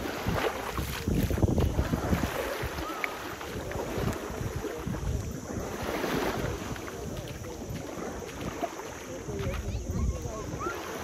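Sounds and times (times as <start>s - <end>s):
water sloshing and splashing: 0.0s - 11.0s
wind buffeting microphone: 0.0s - 11.0s.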